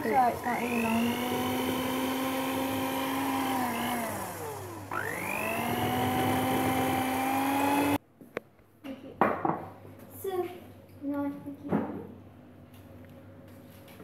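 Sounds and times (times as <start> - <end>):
electric hand mixer whining: 0.0 - 8.0.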